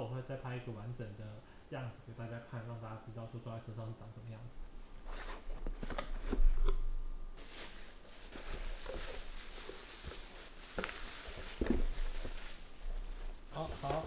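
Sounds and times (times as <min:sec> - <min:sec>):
packaging rustling: 0:07.4 - 0:14.0.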